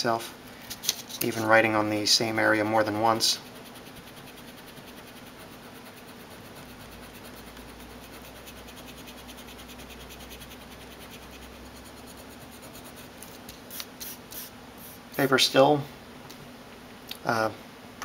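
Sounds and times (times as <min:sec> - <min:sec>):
eraser rubbing on paper: 0:03.2 - 0:15.0.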